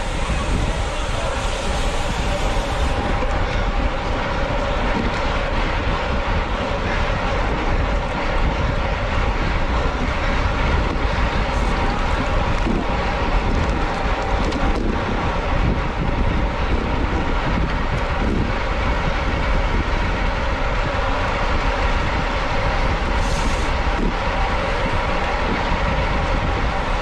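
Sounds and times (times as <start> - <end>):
tyre and road noise: 0.0 - 27.0
wind buffeting microphone: 0.0 - 27.0.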